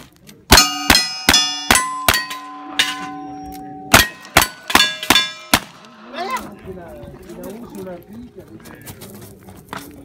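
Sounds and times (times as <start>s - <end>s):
steel plate ringing clang: 0.5s - 6.1s.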